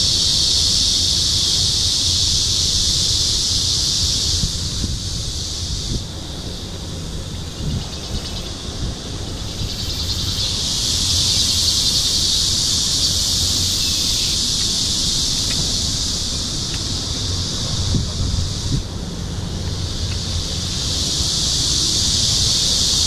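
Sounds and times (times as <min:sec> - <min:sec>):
cicadas buzzing: 0:00.0 - 0:23.0
wind rumble on microphone: 0:00.0 - 0:23.0.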